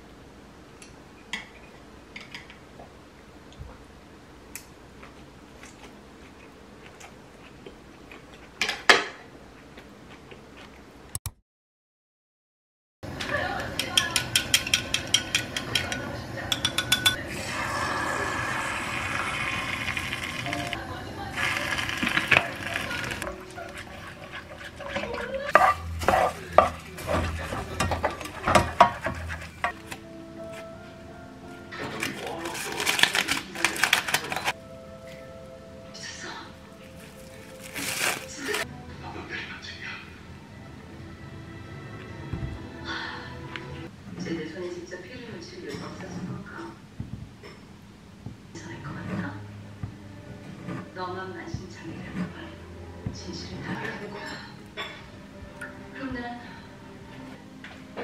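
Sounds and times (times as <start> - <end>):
chopsticks clattering: 13.6 - 17.2, 21.4 - 29.9
chopsticks tapping wooden plate: 13.8 - 17.2
eggs sizzling in a frying pan: 17.2 - 29.4
spatula scraping a pan: 19.2 - 29.8, 51.8 - 52.6.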